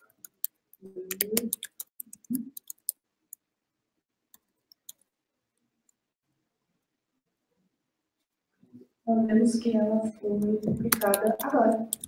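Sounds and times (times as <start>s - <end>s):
computer keyboard typing: 0.0s - 3.4s, 4.3s - 5.1s, 10.4s - 12.0s.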